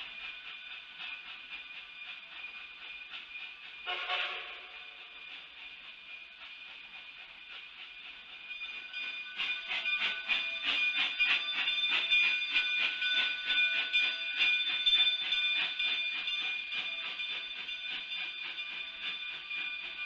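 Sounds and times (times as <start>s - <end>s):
steam locomotive chuffing: 0.0s - 20.0s.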